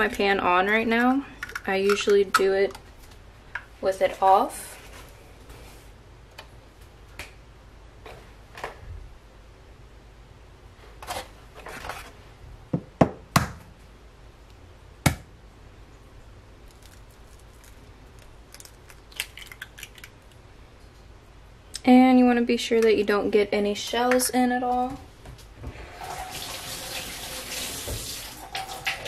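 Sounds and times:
eggshell crackling: 16.6s - 20.5s.

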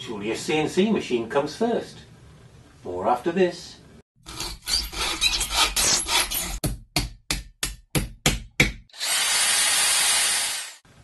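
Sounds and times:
sharp hand-tool strokes: 4.2s - 6.6s, 8.9s - 10.8s
power tool running: 8.9s - 10.8s.

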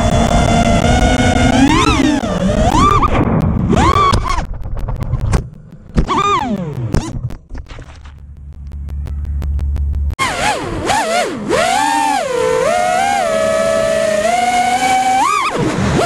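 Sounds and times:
low steady hum: 0.0s - 10.2s
drone motors whining: 0.0s - 16.0s.

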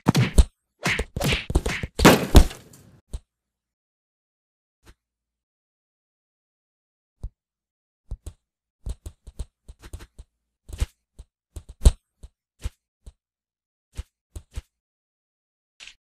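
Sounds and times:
cartoon fight thuds and hits: 0.0s - 2.8s.

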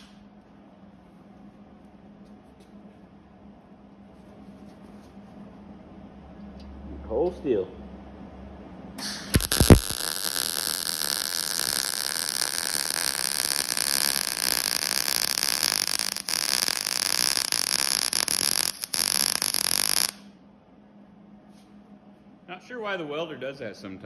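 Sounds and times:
arc striking pop: 9.0s - 20.2s
welder arc buzzing: 9.0s - 20.4s.

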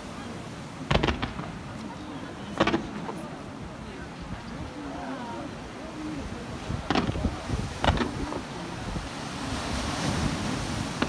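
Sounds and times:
small waves breaking on shore: 0.0s - 11.0s
fireworks bangs: 0.8s - 3.3s, 6.7s - 8.6s.

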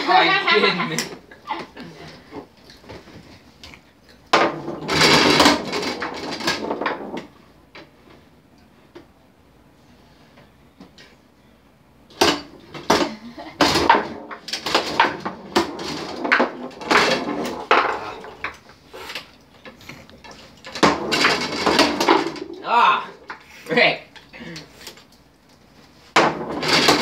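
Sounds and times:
foosball ball knocks and clacks: 4.3s - 7.9s, 12.1s - 18.8s, 19.6s - 23.5s, 26.0s - 27.0s
rods banging against frame: 20.7s - 22.6s.

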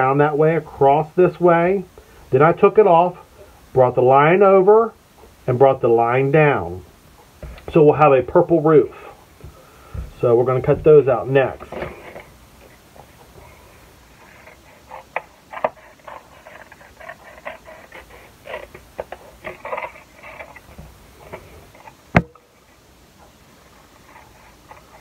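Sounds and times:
paper rustling: 10.6s - 12.8s, 14.2s - 22.0s.

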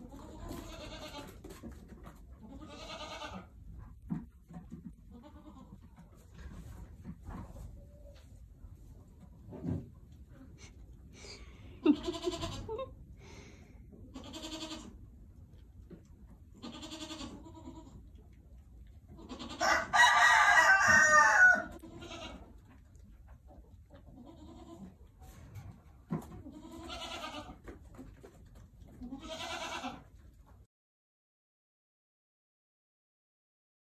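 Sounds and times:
rooster crowing: 19.6s - 21.8s.

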